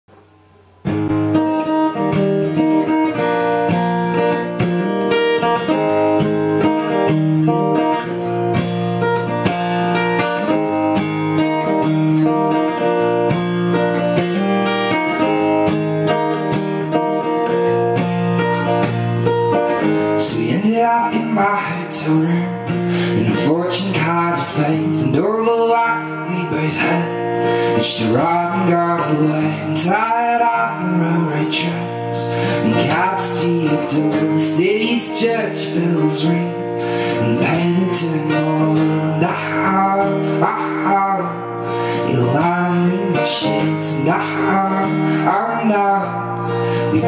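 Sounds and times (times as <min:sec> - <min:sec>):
acoustic guitar chords: 0:00.1 - 0:47.0
man singing: 0:19.8 - 0:47.0.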